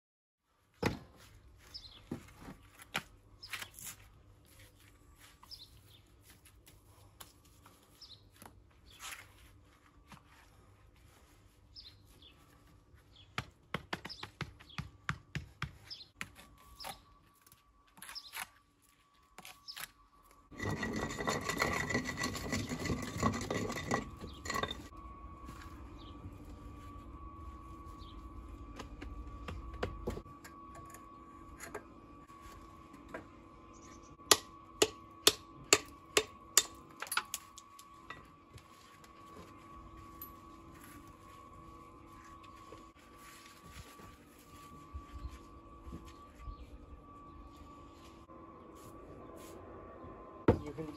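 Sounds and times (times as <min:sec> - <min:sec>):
steady hum: 0:19.9 - 0:50.9
loud rasping: 0:20.5 - 0:24.9.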